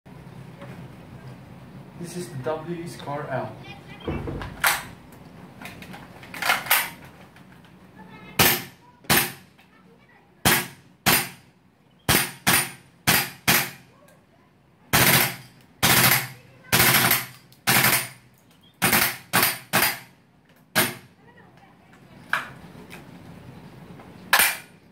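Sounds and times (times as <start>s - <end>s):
airsoft rifle firing: 8.4s - 9.4s, 10.4s - 11.4s, 12.1s - 13.8s, 14.9s - 18.2s, 18.8s - 20.1s, 20.7s - 21.1s, 24.3s - 24.8s.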